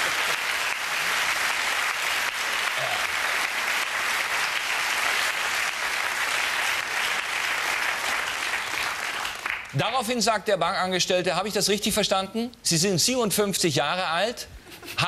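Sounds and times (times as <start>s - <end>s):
audience applauding: 0.0s - 9.9s.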